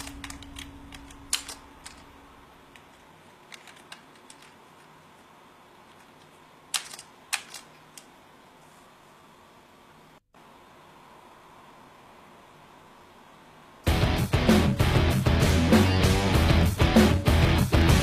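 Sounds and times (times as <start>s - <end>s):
computer keyboard keystrokes: 0.0s - 2.1s, 3.5s - 4.6s, 6.7s - 8.1s.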